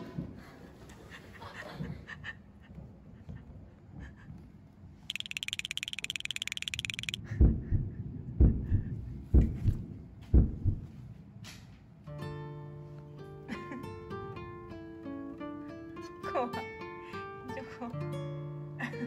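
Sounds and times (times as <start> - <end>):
rapid buzzing trill: 5.1 - 7.2
heartbeat thumps: 7.2 - 11.0.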